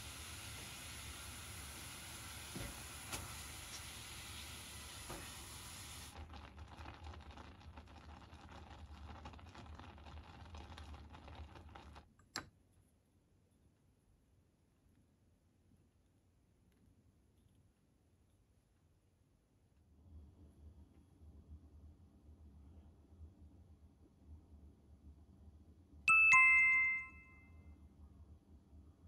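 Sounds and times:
broth boiling: 0:00.0 - 0:12.1.

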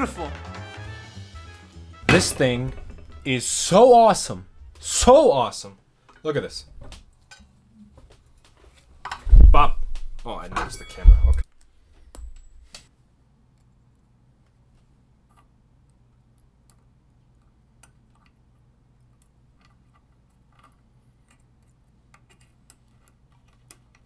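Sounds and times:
low hum: 0:09.3 - 0:11.4.

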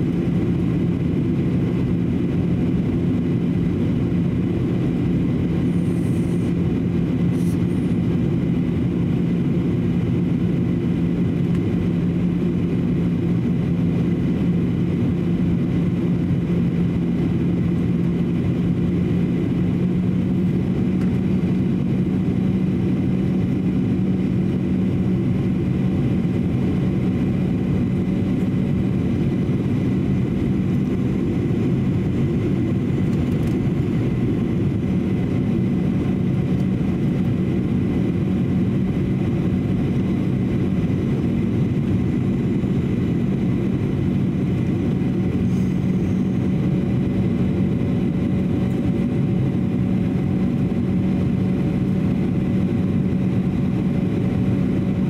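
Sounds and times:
jet engine drone: 0:00.0 - 0:55.0
steady low hum: 0:00.0 - 0:55.0
faint high whine: 0:40.2 - 0:49.8.

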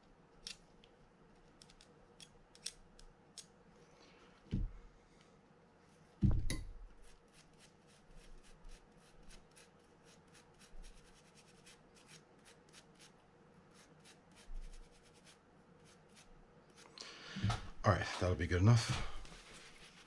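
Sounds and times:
dull thump: 0:04.5 - 0:04.8, 0:06.2 - 0:06.6
toothbrush scrubbing: 0:07.0 - 0:13.1.

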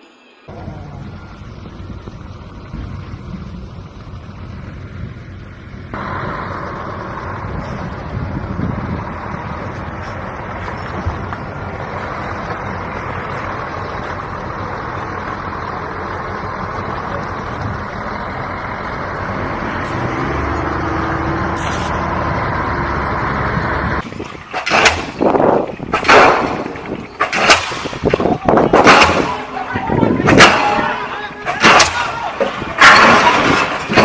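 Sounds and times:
diesel truck engine running: 0:00.5 - 0:34.0
pile driver hammer bangs: 0:25.9 - 0:34.0.

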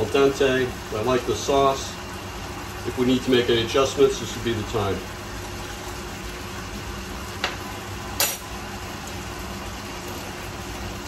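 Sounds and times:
kitchen ventilation hum: 0:00.0 - 0:11.0.

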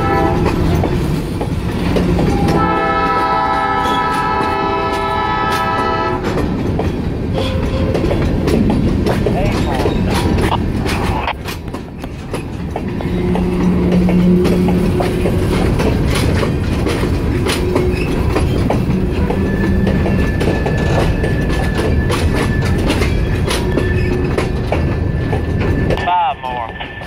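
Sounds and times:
wheels clicking over rail joints: 0:00.0 - 0:26.0
freight train rolling past: 0:00.0 - 0:27.0
high wheel squeal: 0:17.6 - 0:26.0.

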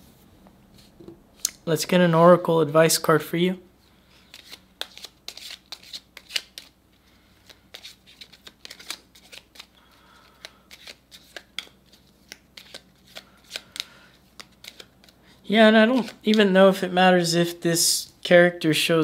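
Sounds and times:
cards being shuffled: 0:04.2 - 0:06.8, 0:07.4 - 0:16.5.

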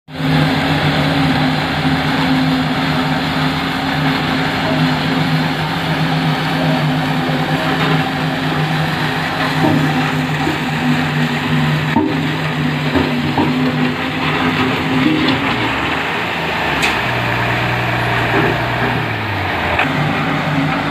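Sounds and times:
diesel engine running: 0:00.1 - 0:20.9
stones crunching under rollers: 0:07.0 - 0:19.9.

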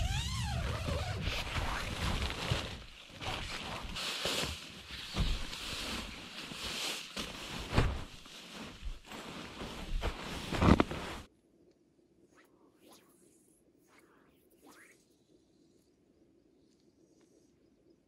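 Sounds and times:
tent fabric rustling and crinkling: 0:00.0 - 0:11.3.

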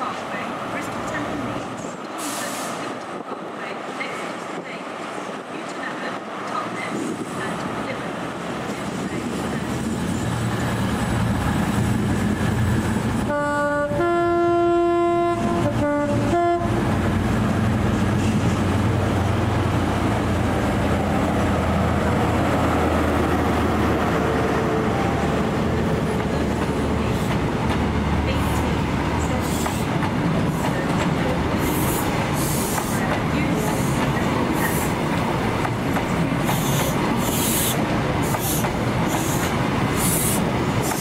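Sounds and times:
train coaches rolling on rails: 0:00.0 - 0:41.0
two-tone train horn: 0:13.2 - 0:17.0.

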